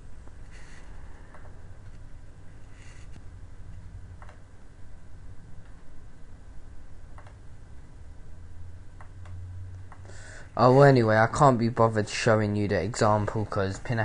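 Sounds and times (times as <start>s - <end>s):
low steady hum: 0.0s - 14.0s
computer mouse clicks: 4.2s - 4.4s, 7.1s - 7.4s.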